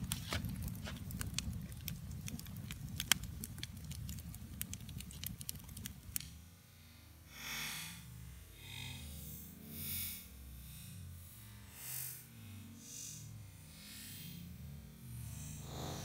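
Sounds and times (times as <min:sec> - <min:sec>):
fire crackling and popping: 0:00.0 - 0:06.5
low rumble: 0:15.3 - 0:16.0.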